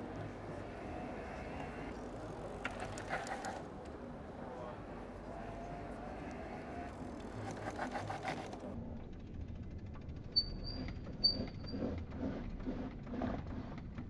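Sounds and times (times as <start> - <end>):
high brake squeals: 10.4 - 11.8.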